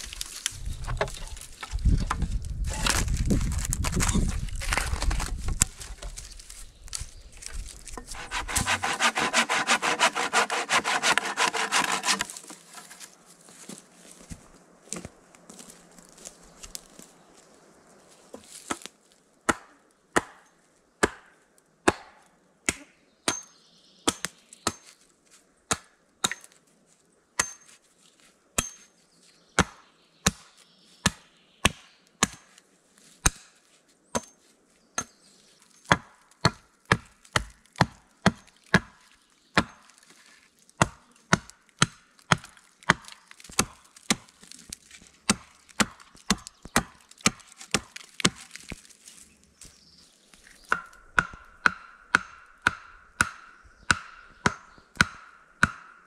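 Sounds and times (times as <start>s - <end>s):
axe chopping wood: 19.5s - 20.4s, 21.0s - 23.5s, 25.7s - 26.5s, 29.6s - 32.5s, 35.9s - 39.0s, 39.6s - 39.8s, 40.8s - 48.7s, 50.7s - 56.0s.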